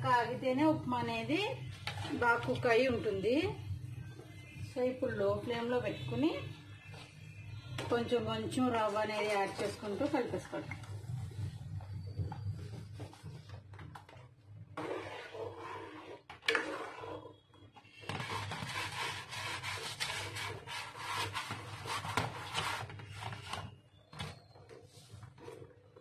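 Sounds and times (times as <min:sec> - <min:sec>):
spoon scraping metal pot: 0:14.8 - 0:23.4.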